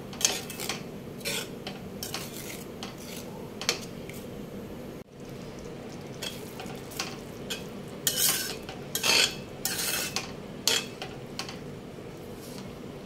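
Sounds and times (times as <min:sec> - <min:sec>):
spatula scraping metal pot: 0:00.1 - 0:03.3, 0:07.5 - 0:11.0.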